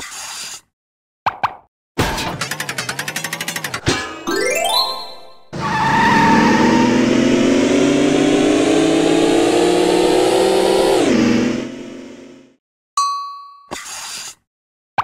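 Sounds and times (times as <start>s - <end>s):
cartoon race car engine: 2.3s - 4.3s, 5.4s - 12.6s.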